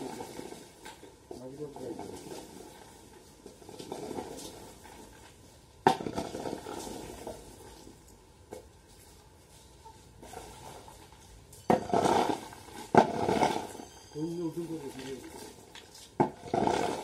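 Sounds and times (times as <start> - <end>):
metal hoe scraping concrete: 11.6 - 17.0.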